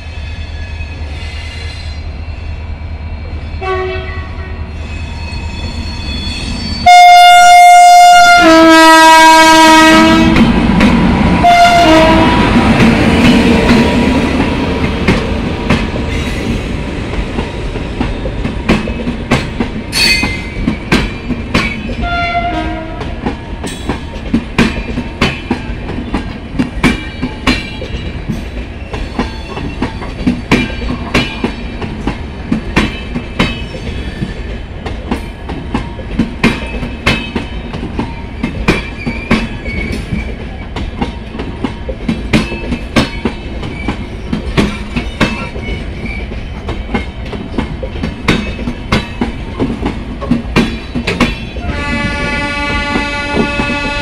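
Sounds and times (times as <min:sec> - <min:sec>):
train coaches rumbling past: 0:00.0 - 0:54.0
train horn: 0:03.6 - 0:04.6, 0:06.8 - 0:10.5, 0:11.4 - 0:12.6, 0:22.0 - 0:23.2, 0:51.6 - 0:54.0.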